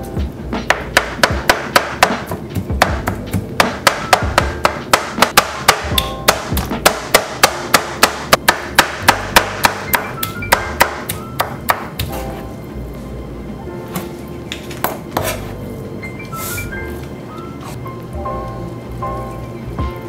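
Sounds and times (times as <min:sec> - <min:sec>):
background music: 0:00.0 - 0:20.0
cleaver chopping on cutting board: 0:00.7 - 0:12.2, 0:14.8 - 0:15.5.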